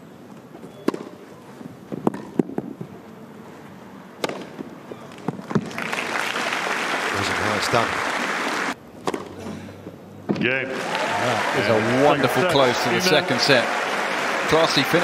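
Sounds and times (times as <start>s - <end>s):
racket striking tennis ball: 4.2s - 4.7s
crowd applause: 5.6s - 8.8s, 10.6s - 15.0s.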